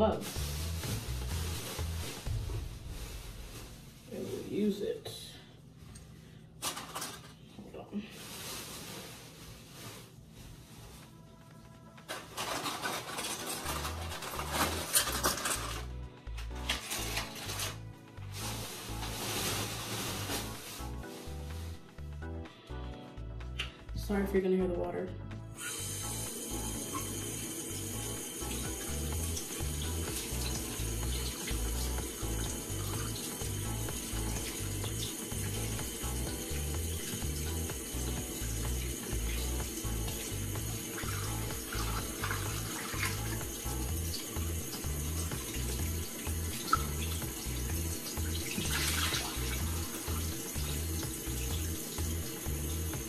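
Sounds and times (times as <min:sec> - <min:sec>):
low pulsing music beat: 0:00.0 - 0:04.0, 0:20.2 - 0:53.0
water running from a tap: 0:25.6 - 0:53.0.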